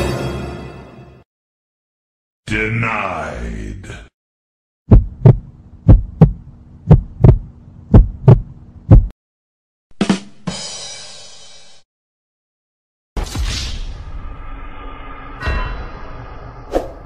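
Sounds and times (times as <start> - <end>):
heartbeat thumps: 4.9 - 9.1.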